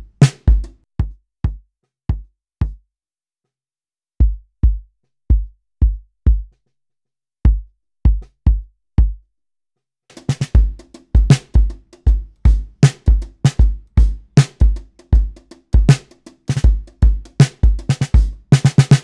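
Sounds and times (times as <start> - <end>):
bass drum thuds: 7.5 - 9.2.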